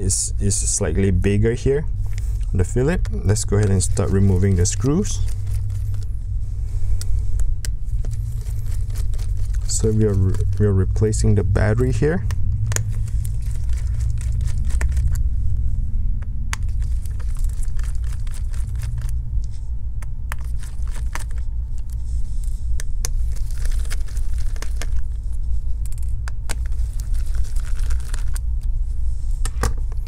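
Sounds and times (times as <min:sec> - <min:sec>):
low rumble: 0:00.0 - 0:30.0
hands rustling parts: 0:02.0 - 0:15.7, 0:16.5 - 0:30.0.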